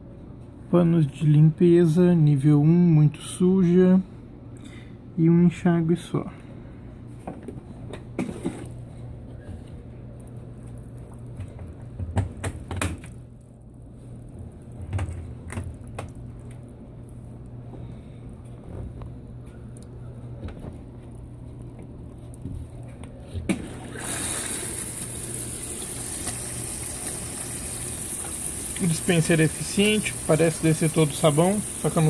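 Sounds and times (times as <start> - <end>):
washing machine hum: 6.3 - 32.0
water spraying into drum: 23.5 - 32.0.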